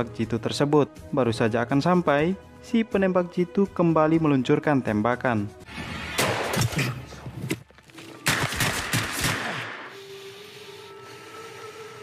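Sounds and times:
rifle shots with echo: 8.3s - 9.9s.

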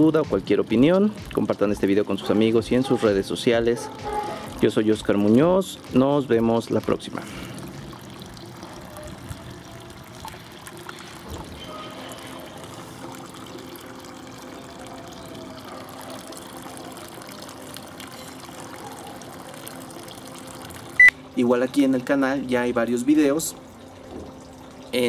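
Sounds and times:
water trickling into pond: 0.0s - 25.0s.

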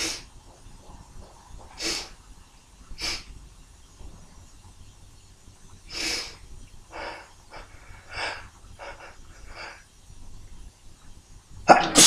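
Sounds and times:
sneeze: 11.7s - 12.0s.

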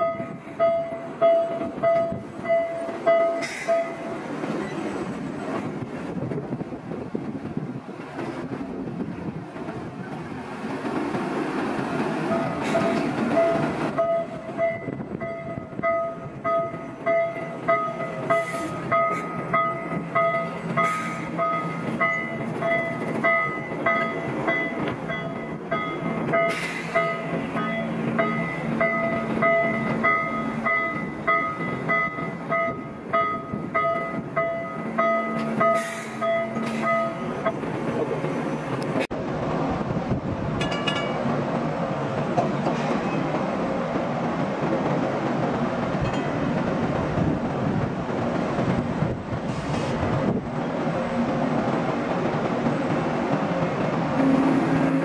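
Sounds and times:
electric locomotive whine: 0.0s - 55.0s.

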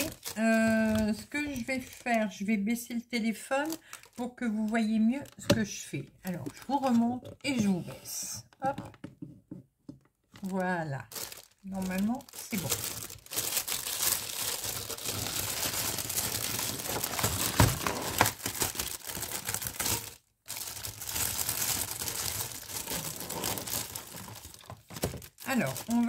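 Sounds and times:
plastic wrapping crinkling and tearing: 0.0s - 2.4s, 3.6s - 5.5s, 10.3s - 26.0s.

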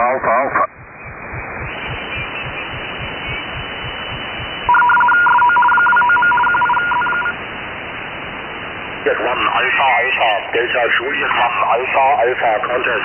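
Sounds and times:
radio hiss with crackles: 0.0s - 13.0s
warbling two-tone data signal: 0.5s - 7.4s.

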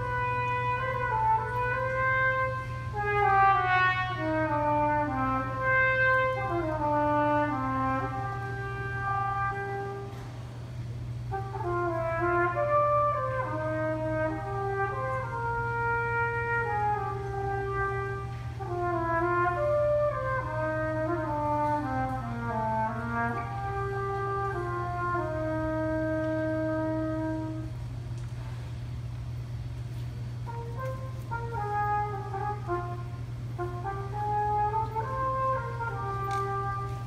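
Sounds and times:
trumpet solo melody: 0.0s - 28.3s, 29.4s - 37.0s
steady low hum: 0.0s - 37.0s.

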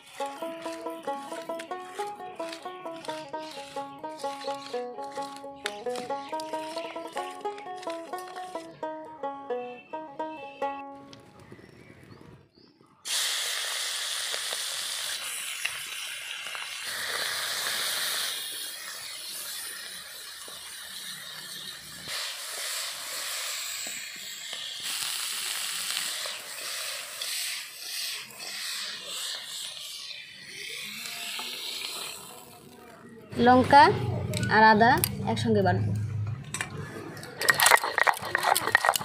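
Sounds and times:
fish sizzling in hot oil: 13.1s - 32.4s.

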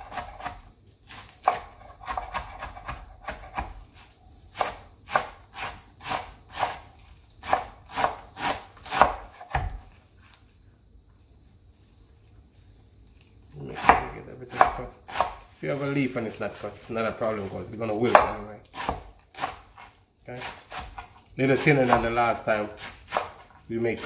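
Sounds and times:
knife chopping on wooden board: 0.0s - 3.8s, 4.5s - 6.8s, 7.4s - 10.0s, 13.8s - 15.5s, 18.1s - 21.2s, 21.8s - 23.6s.

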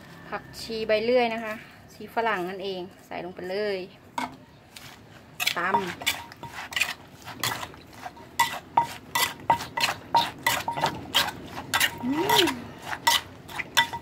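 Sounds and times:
metal spoon ringing on mortar: 5.7s - 6.6s, 8.2s - 11.0s, 11.8s - 12.4s, 13.8s - 14.0s
wooden pestle pounding in mortar: 8.4s - 14.0s.

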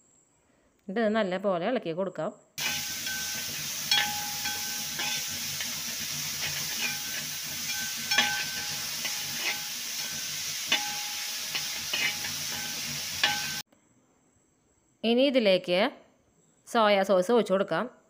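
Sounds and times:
spatula scraping and knocking pan: 2.6s - 13.6s
vegetables sizzling in hot oil: 2.6s - 13.6s.

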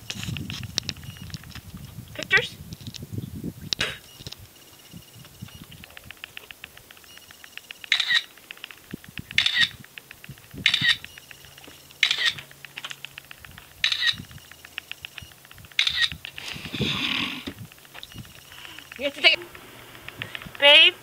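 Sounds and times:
phone camera shutter: 3.8s - 20.6s.

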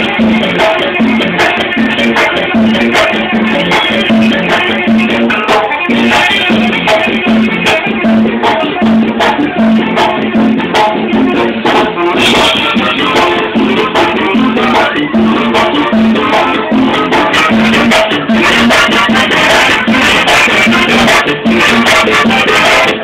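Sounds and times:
brass band playing loudly: 0.0s - 23.0s
pulsing bass line: 0.0s - 23.0s.

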